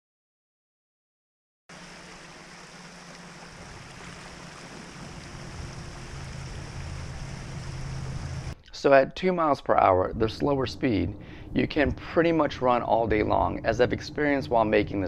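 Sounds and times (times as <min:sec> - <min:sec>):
electric outboard motor hum: 0:01.7 - 0:08.6, 0:10.4 - 0:15.0
water rushing past boat hull: 0:01.7 - 0:08.6.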